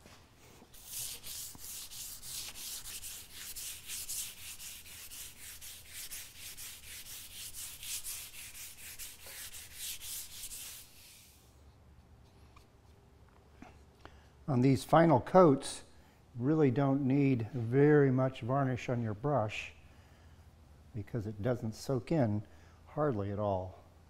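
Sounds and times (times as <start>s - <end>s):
sandpaper rubbing on varnish: 0.7s - 11.4s.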